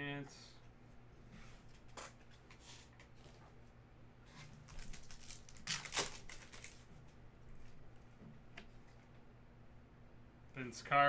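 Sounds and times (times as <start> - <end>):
foil wrapper crinkling: 4.6 - 6.9.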